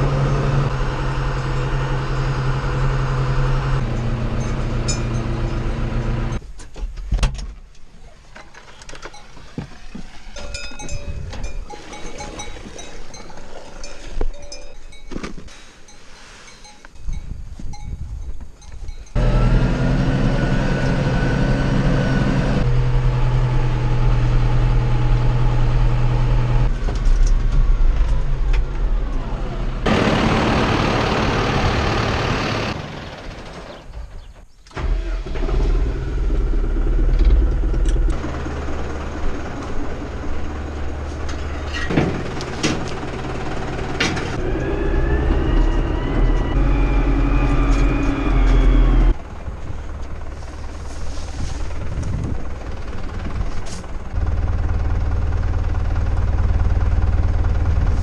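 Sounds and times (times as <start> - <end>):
tractor diesel engine running: 0.0 - 6.6, 18.4 - 58.0
rising whine: 44.3 - 50.1.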